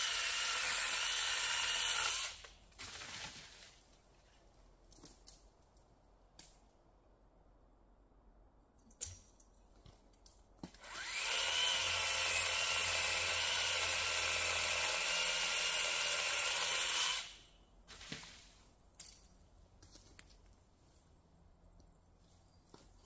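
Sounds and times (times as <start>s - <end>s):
pole saw motor whining: 0.0s - 2.4s, 10.8s - 17.5s.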